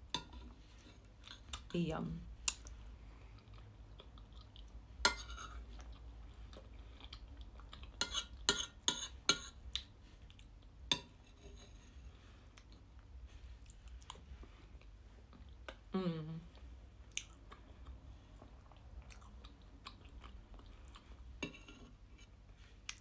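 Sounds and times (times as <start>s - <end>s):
soft chewing: 0.1s - 1.7s, 2.4s - 23.0s
cutlery clicking and scraping plate: 8.0s - 9.5s.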